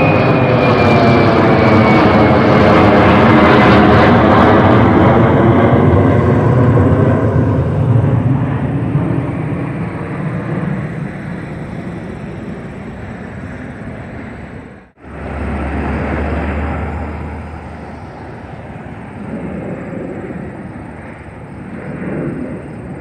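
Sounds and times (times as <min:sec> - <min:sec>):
jet aircraft passing overhead: 0:00.0 - 0:23.0
highway traffic passing: 0:05.8 - 0:23.0.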